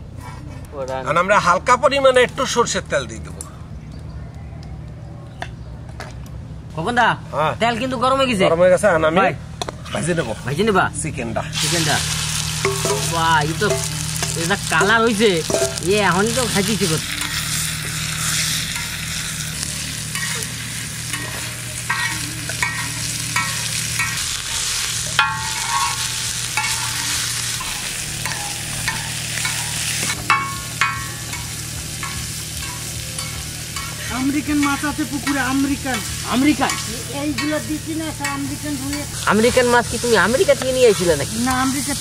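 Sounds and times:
meat sizzling in oil: 11.6 - 42.0
metal spatula scraping a pan: 20.0 - 41.3.

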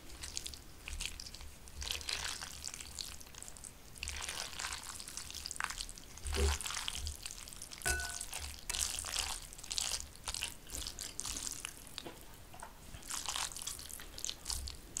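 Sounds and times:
noodles squishing in a bowl: 0.0 - 15.0
chopsticks clinking on a bowl: 7.9 - 8.4.

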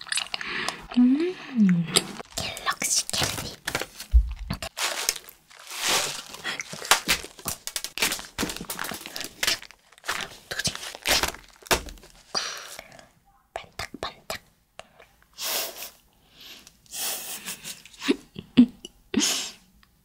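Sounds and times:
plastic crinkling: 2.2 - 12.8.

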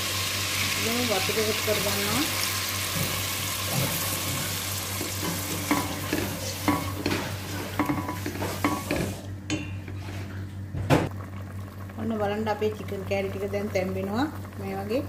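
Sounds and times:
oil sizzling in pot: 0.0 - 10.3.

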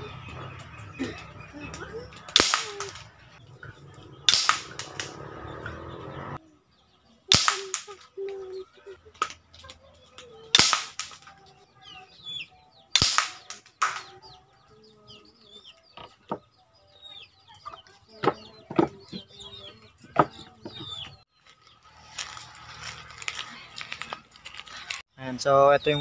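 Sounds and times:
toy gun shots: 2.3 - 3.1, 4.3 - 5.2, 7.3 - 8.1, 10.5 - 11.3, 12.9 - 14.2.

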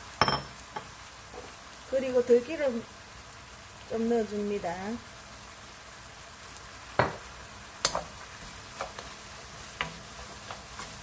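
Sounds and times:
vegetables sizzling in frying pan: 0.0 - 11.0
wooden spatula knocking pan: 9.7 - 11.0.

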